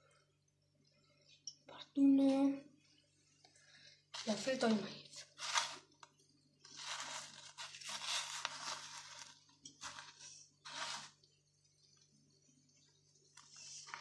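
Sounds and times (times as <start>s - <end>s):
snack crumbs crunching and rustling: 5.2s - 14.0s.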